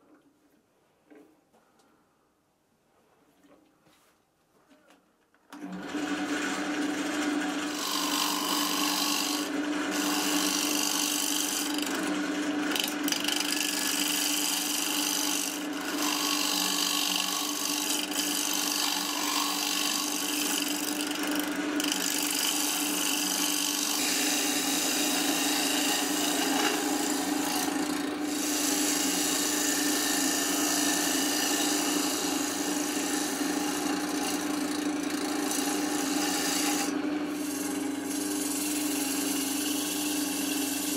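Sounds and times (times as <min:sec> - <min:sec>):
lathe humming: 0:05.6 - 0:40.9
turning tool rasping wood: 0:05.6 - 0:40.9.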